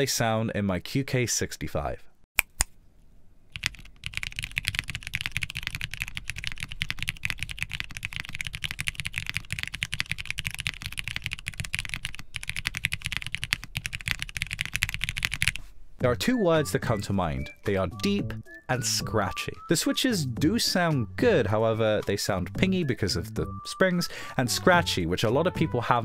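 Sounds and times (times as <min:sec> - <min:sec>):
fast typing on mechanical keyboard: 0:03.5 - 0:15.6.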